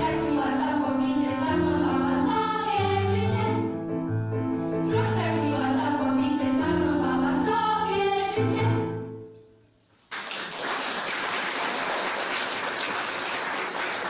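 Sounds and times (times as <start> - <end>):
girls singing with accompaniment: 0.0 - 3.9, 4.8 - 9.4
audience applause: 10.1 - 14.0.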